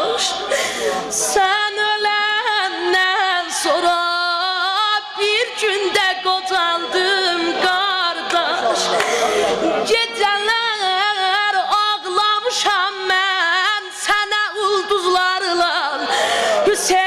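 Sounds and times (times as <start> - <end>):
boy singing unaccompanied lament: 9.9 - 17.0.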